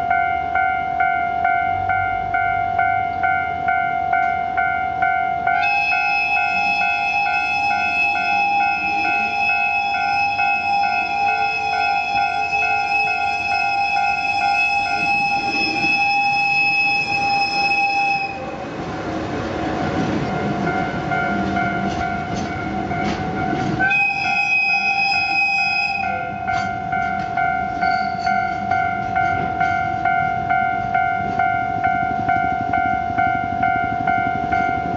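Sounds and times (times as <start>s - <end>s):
level crossing bell ringing: 0.0s - 18.5s, 20.4s - 34.9s
locomotive horn: 5.6s - 18.6s, 23.8s - 26.8s
train wagons rolling and clattering: 5.6s - 34.9s.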